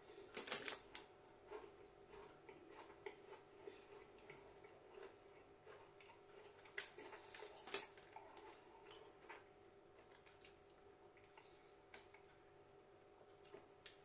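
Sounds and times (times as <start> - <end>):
chewing crunchy cookie: 0.0 - 14.0
faint steady hum: 0.0 - 14.0
crinkly plastic packet handling: 0.3 - 1.0.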